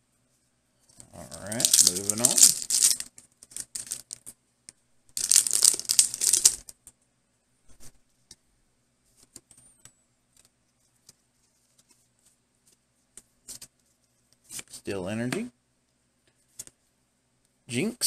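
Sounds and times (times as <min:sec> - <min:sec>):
cards clicking and rustling: 0:01.3 - 0:04.2, 0:05.2 - 0:06.7
foil wrapper crinkling: 0:01.4 - 0:04.2, 0:05.2 - 0:06.6.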